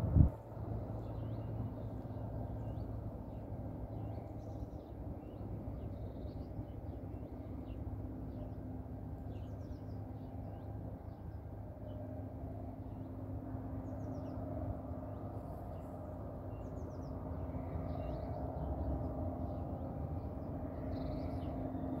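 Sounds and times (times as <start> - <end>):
distant jet engines rumbling: 0.0 - 22.0
small birds chirping: 1.0 - 11.3, 15.1 - 22.0.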